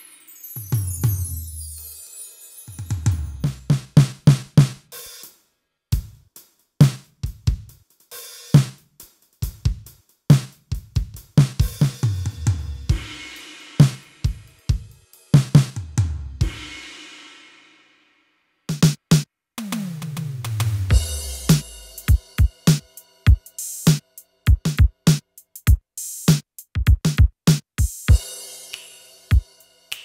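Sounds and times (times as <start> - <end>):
drum hits: 18.7 - 28.4
cymbal wash ringing: 20.9 - 24.2.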